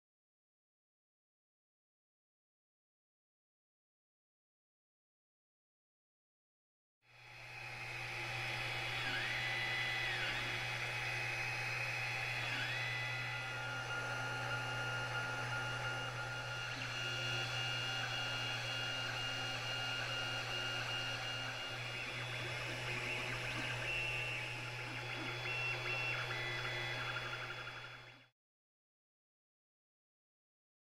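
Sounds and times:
stepper motors whining: 0:07.4 - 0:28.3.

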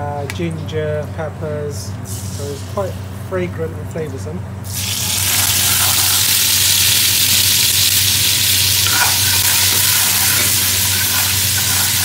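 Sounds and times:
paste sizzling in hot oil: 0:04.7 - 0:12.0.

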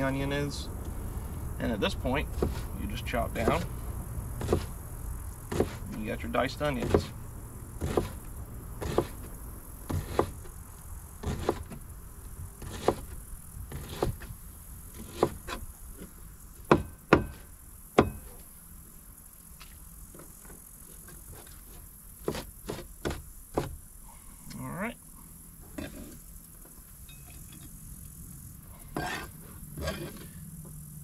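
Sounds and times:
knife chopping on plastic board: 0:04.4 - 0:04.7, 0:06.8 - 0:07.1, 0:07.8 - 0:08.2, 0:09.9 - 0:10.4.

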